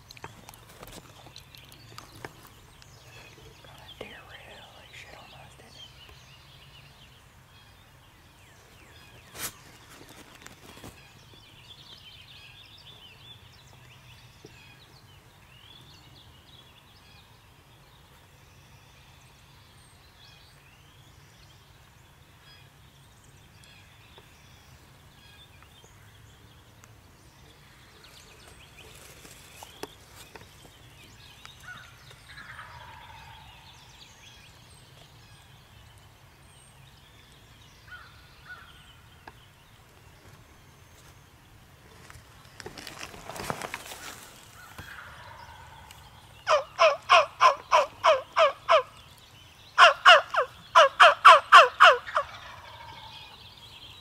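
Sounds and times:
soft clicks and rustles: 0.0 - 4.1
songbirds chirping: 0.0 - 54.0
wild turkey gobbling: 32.3 - 33.6, 44.9 - 48.9, 49.8 - 53.4.

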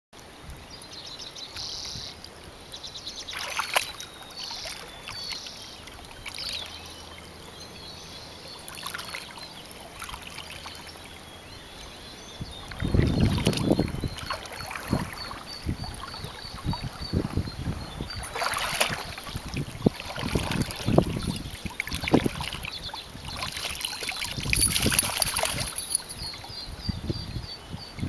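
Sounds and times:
river water rippling: 0.2 - 28.0
dog splashing in water: 18.2 - 22.6, 23.3 - 26.2
high bird chirps: 22.8 - 27.7.

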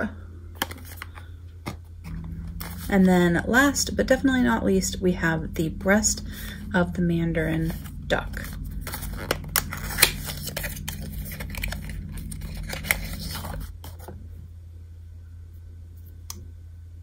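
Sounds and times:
cardboard rustling and scraping: 0.6 - 2.9, 7.6 - 14.2.

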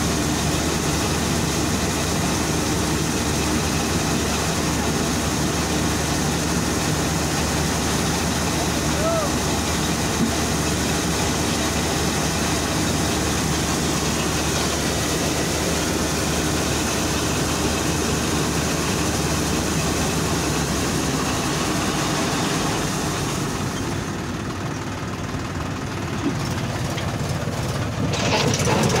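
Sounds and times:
combine harvester running: 0.0 - 29.0.

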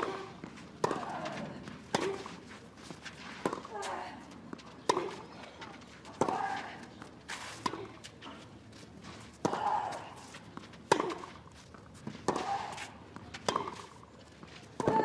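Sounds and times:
racket hitting tennis ball: 0.0 - 2.4, 4.8 - 5.3, 6.2 - 6.7, 7.4 - 8.0, 9.4 - 14.0.

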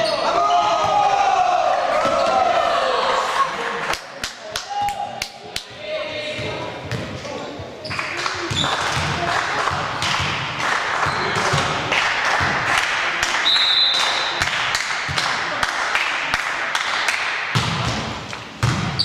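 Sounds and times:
basketball bouncing on court: 8.4 - 11.8, 17.5 - 19.0.

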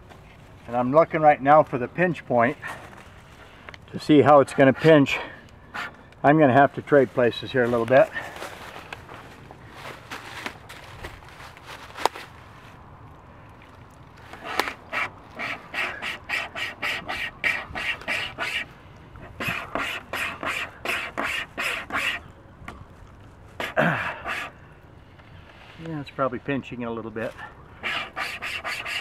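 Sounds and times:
wire saw rasping through wood: 14.4 - 22.2, 27.8 - 29.0.

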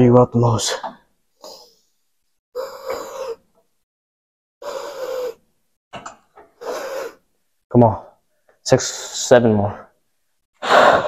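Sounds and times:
man breathing heavily: 4.6 - 5.4, 10.6 - 11.0.

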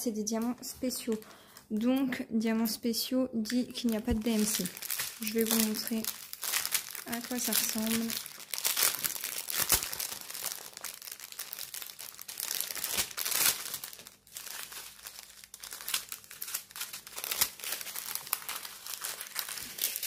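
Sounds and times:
plastic bags crinkling: 0.0 - 2.0, 3.4 - 20.0.

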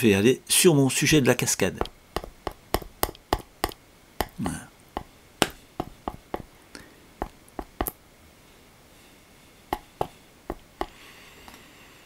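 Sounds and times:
painting knife tapping canvas: 1.8 - 4.4, 5.0 - 6.5, 7.2 - 8.0, 9.7 - 11.0.

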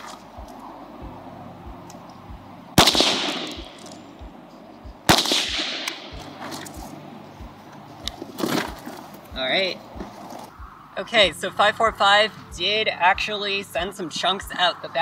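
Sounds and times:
rifle shots with echo: 2.8 - 4.0, 5.1 - 6.3.

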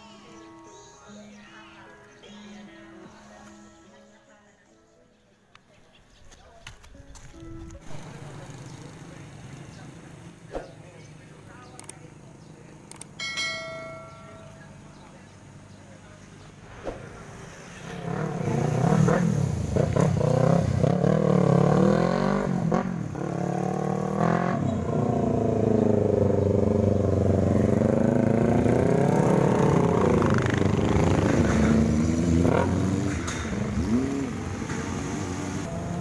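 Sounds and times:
motorcycle engines revving: 7.7 - 36.0.

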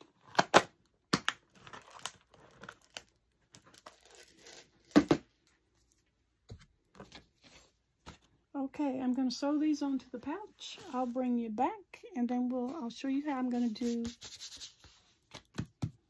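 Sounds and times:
crinkling and rustling: 0.0 - 8.4.

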